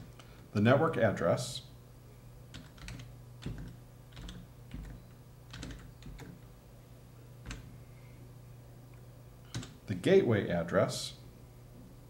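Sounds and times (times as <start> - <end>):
low steady hum: 0.0 - 12.0
keyboard typing clicks: 2.5 - 6.4, 7.4 - 7.7, 9.5 - 9.8.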